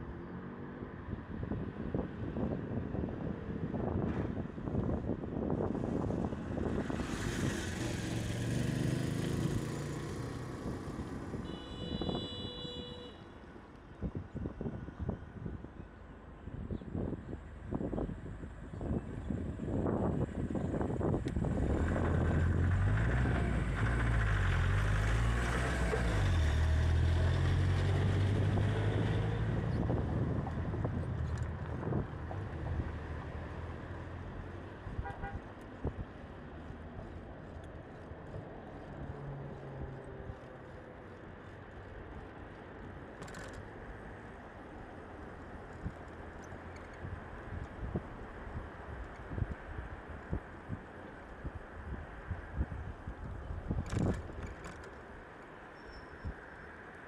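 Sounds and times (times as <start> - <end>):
road noise hum: 0.0 - 57.0
vehicle engine passing: 6.8 - 11.3, 21.5 - 31.2.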